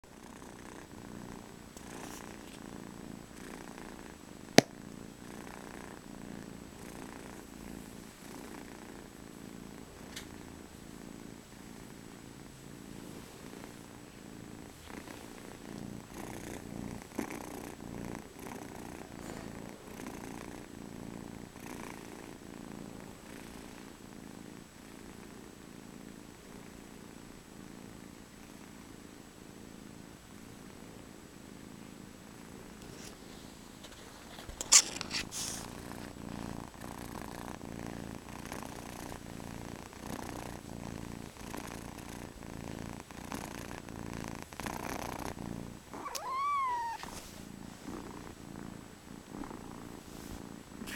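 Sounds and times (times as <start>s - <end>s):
kitten purring: 0.0s - 50.9s
soft rustles: 1.8s - 2.8s, 12.8s - 20.6s, 32.7s - 50.9s.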